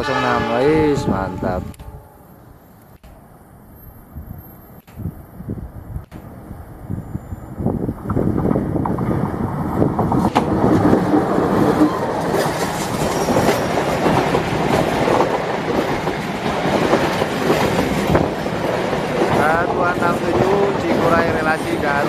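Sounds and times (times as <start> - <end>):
locomotive passing: 0.0 - 22.0
train wheels knocking on track: 8.0 - 22.0.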